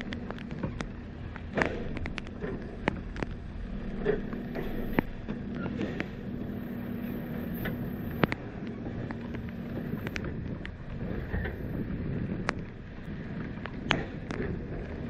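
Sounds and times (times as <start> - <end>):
truck engine and hydraulic hum: 1.5 - 13.1.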